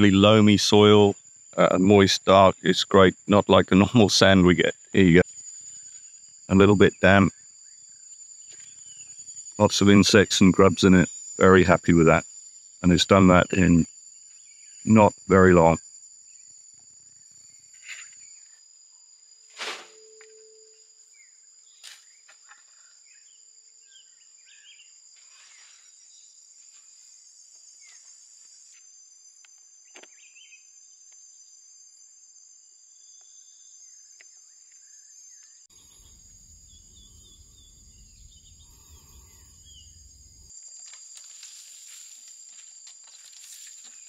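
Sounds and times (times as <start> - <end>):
insects droning: 0.0 - 44.0
bird chirps: 34.8 - 40.5
low rumbling noise: 35.8 - 40.5.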